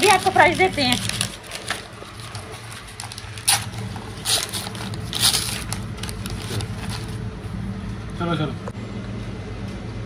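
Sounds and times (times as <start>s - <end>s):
paper bag crinkling: 0.0s - 7.2s
steady low hum: 0.0s - 10.0s.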